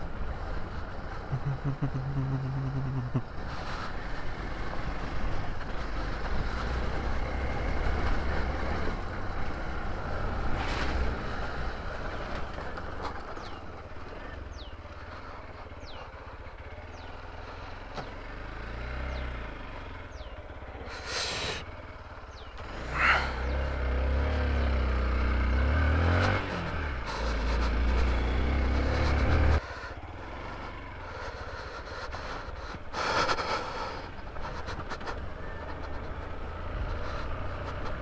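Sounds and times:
motorcycle engine rumble: 0.0s - 38.0s.

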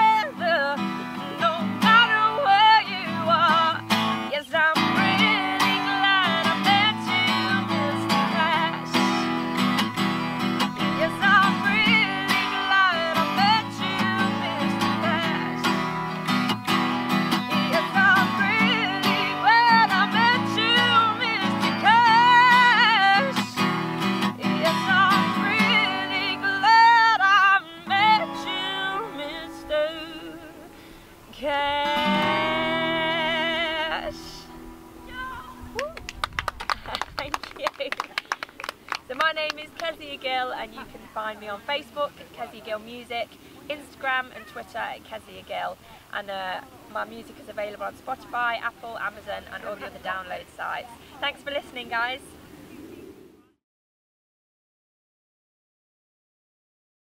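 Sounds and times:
acoustic guitar strumming: 0.0s - 35.8s
woman singing country song: 0.0s - 36.0s, 39.0s - 52.4s.

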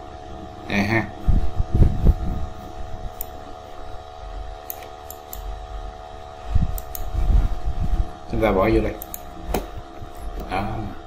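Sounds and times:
steady hum: 0.0s - 11.0s
computer mouse clicks: 6.7s - 7.1s.

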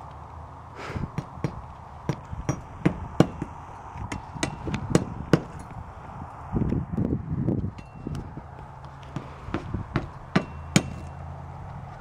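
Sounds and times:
hammer knocking on shingle roof: 1.2s - 5.5s, 9.2s - 11.0s.

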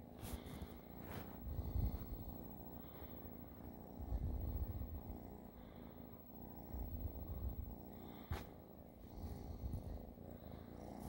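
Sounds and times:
kitten purring: 0.0s - 11.0s.

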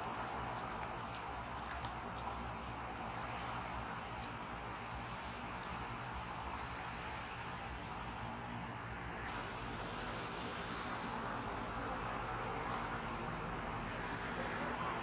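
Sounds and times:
steady outdoor hiss: 0.0s - 15.0s
small birds chirping: 2.2s - 9.3s, 10.1s - 11.5s.

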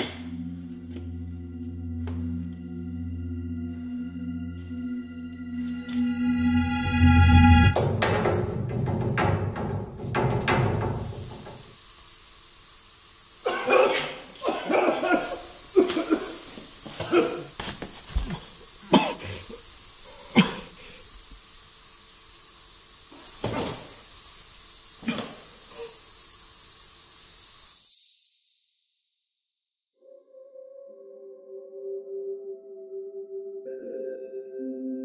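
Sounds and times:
steady high hiss: 10.8s - 28.5s.

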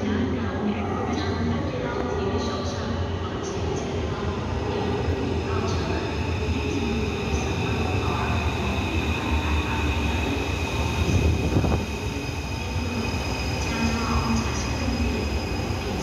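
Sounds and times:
high train whine: 0.0s - 16.0s
train wheels rumbling on rails: 3.5s - 16.0s.

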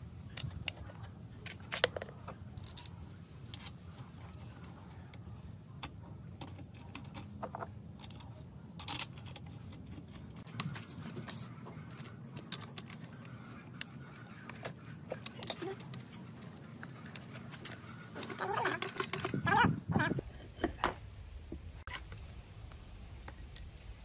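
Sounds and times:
low steady hum: 0.0s - 24.0s
metal tools clinking on metal: 1.6s - 4.0s.

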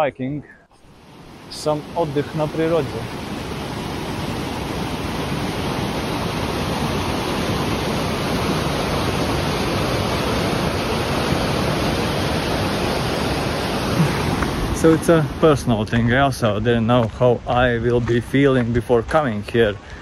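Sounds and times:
stream rushing over rocks: 0.8s - 16.1s.

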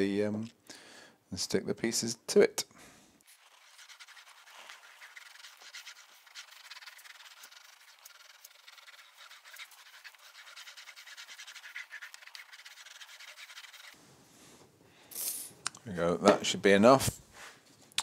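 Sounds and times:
glue roller rubbing on board: 3.3s - 14.0s.

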